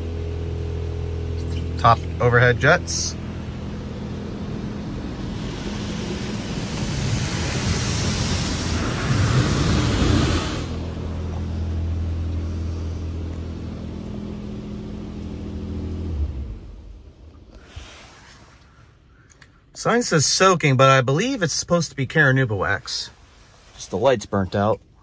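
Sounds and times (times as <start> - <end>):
low hum of wash machinery: 0.0 - 25.0
high-pressure water jets spraying: 4.3 - 10.8.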